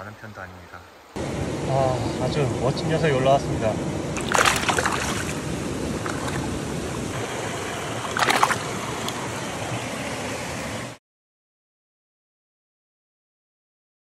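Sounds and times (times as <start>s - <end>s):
stream water running: 0.0s - 11.0s
fish splashing in shallows: 4.2s - 10.1s.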